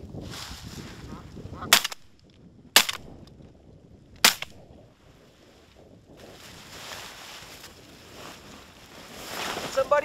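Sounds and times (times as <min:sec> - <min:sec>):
shotgun shots: 0:01.7 - 0:02.1, 0:02.8 - 0:03.1, 0:04.2 - 0:04.6.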